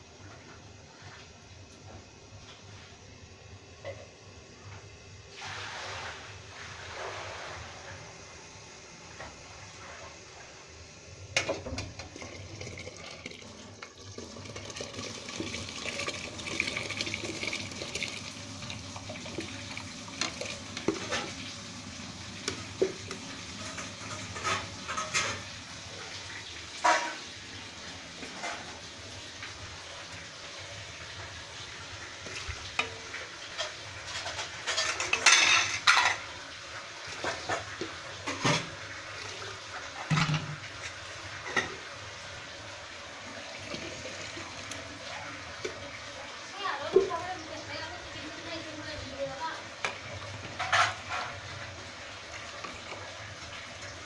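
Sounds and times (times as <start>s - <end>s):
metal utensils clanking on pot: 22.4s - 25.5s, 26.8s - 27.2s, 33.5s - 36.3s, 40.0s - 40.6s, 50.4s - 51.4s.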